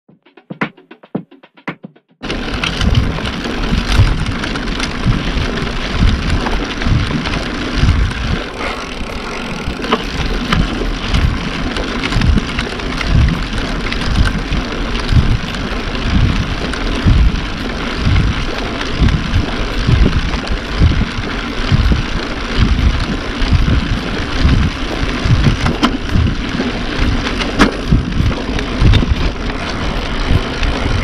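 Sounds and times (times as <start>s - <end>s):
bicycle tyres rolling on road: 2.2s - 31.0s
wind on microphone: 2.5s - 31.0s.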